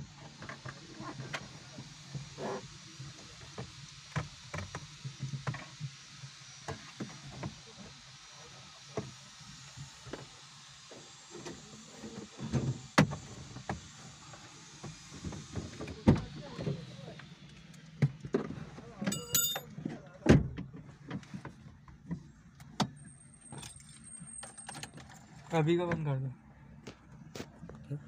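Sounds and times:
hand tools clicking and knocking: 0:19.1 - 0:19.7.

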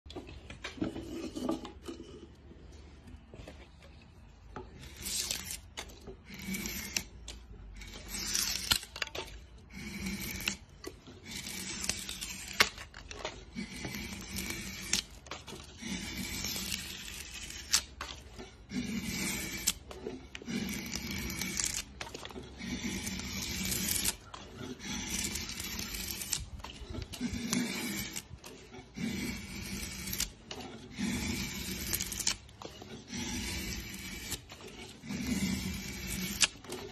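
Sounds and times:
drawknife scraping wood: 0:00.2 - 0:02.3, 0:04.6 - 0:36.9.

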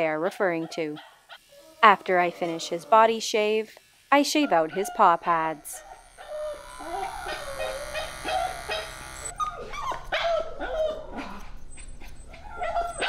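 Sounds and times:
electric pet clippers humming: 0:01.8 - 0:10.7
dog whining and yelping: 0:05.8 - 0:13.0.

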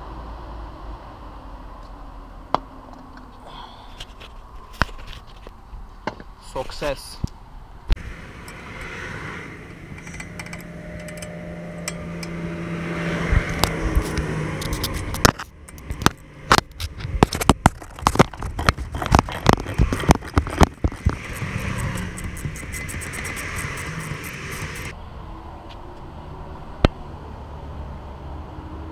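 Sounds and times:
engine hum: 0:07.4 - 0:28.9
wrench clicking on bolt: 0:10.0 - 0:12.4, 0:18.9 - 0:24.9.

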